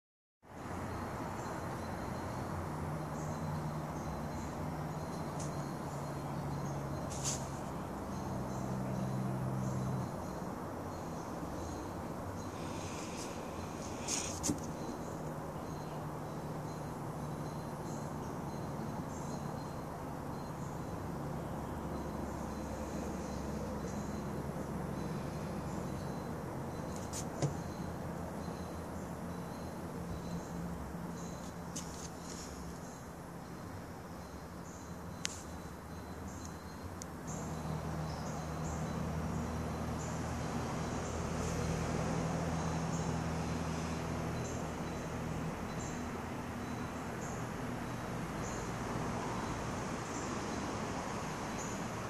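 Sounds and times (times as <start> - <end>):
faint high steady tone: 0.5 - 39.8.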